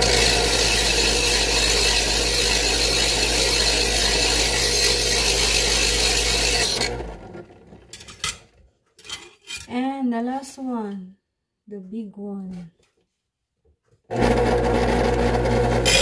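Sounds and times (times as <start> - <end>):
knife blade grinding: 0.0 - 6.9, 7.9 - 8.4
electric knife sharpener motor humming: 0.0 - 7.4, 14.1 - 16.0.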